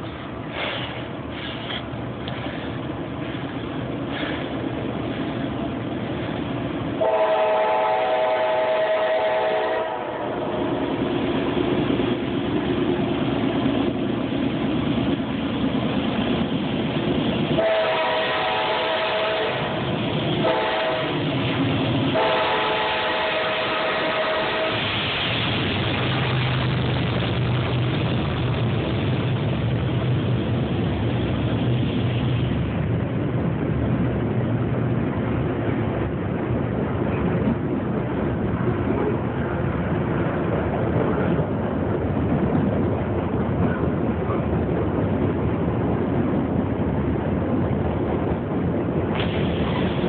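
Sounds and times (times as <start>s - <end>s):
diesel locomotives rumbling: 0.0s - 50.0s
train air horn blasts: 7.0s - 10.6s, 17.6s - 19.8s, 20.4s - 21.3s, 22.1s - 25.0s.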